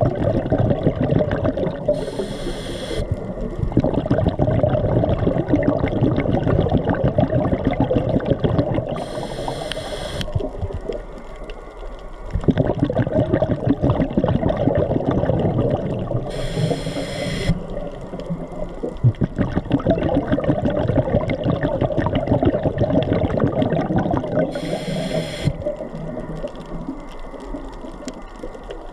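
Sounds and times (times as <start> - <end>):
bubbling exhaled air: 0.0 - 11.0, 12.3 - 28.5
continuous crackle: 0.0 - 28.9
hissing regulator inhales: 2.0 - 3.1, 9.0 - 10.3, 16.3 - 17.6, 24.5 - 25.6.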